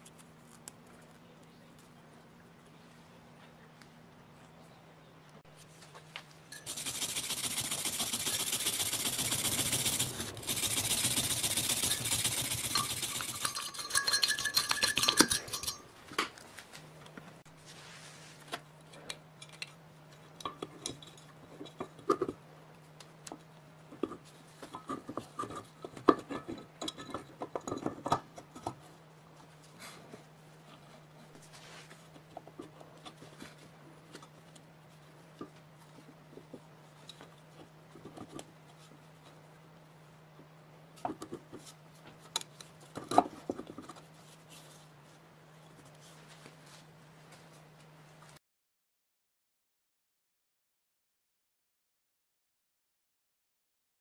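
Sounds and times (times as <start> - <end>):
fast metallic rattling: 6.6 - 15.8
metal parts clicking and knocking: 12.6 - 15.8.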